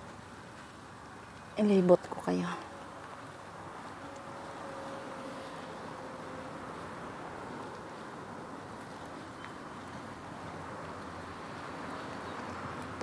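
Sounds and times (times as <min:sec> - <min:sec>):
low outdoor hiss: 0:00.0 - 0:13.0.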